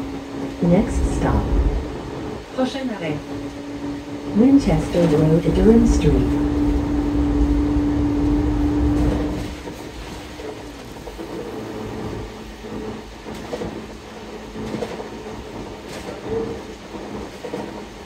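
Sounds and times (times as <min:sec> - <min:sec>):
road noise: 0:00.0 - 0:13.2
bus engine whine and rumble: 0:00.0 - 0:18.0.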